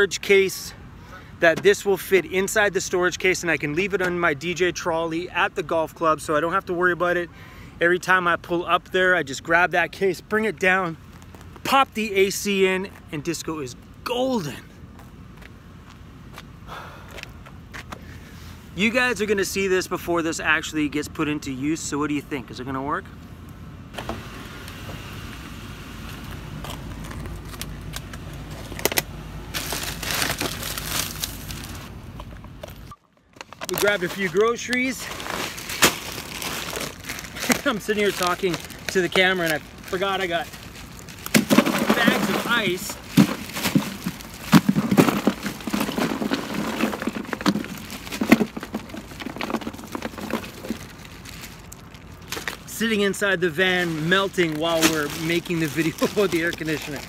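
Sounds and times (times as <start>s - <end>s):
plastic bags rustling: 26.7s - 32.0s, 32.7s - 57.0s.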